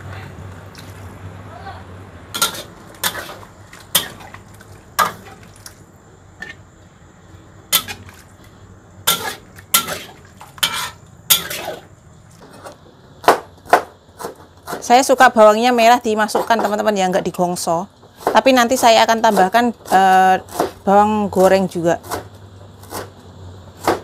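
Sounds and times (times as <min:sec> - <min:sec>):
utensils knocking against pots: 0:09.1 - 0:11.8.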